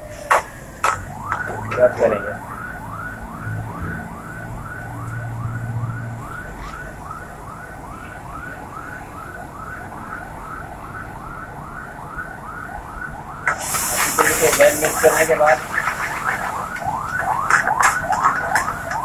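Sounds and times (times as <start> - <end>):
electronic siren yelping: 0.0 - 7.8, 13.0 - 19.0.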